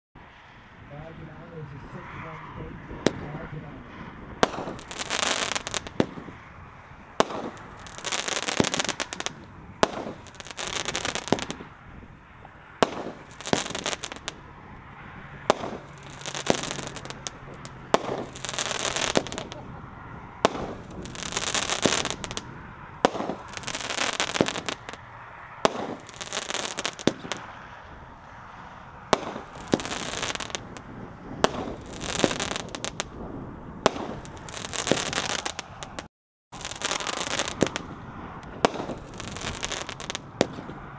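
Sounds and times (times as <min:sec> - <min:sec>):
fireworks crackling: 0:01.0 - 0:40.9
fireworks shots launching: 0:03.0 - 0:11.8, 0:12.8 - 0:14.5, 0:15.4 - 0:19.8, 0:20.4 - 0:27.8, 0:29.0 - 0:40.9.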